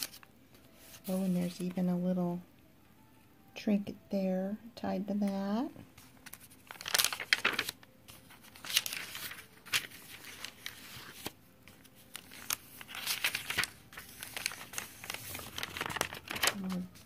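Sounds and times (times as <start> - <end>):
paper pages turning: 0.0 - 1.7, 6.0 - 17.0.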